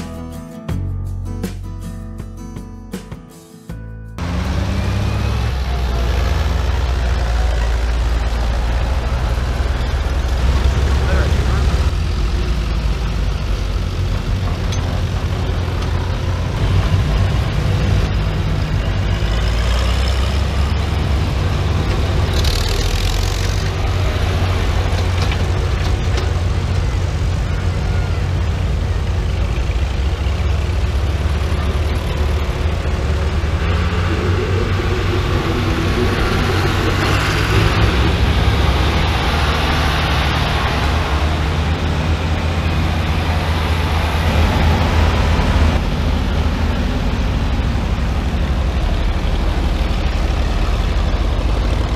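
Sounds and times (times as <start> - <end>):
tractor engines rumbling: 3.7 - 51.9.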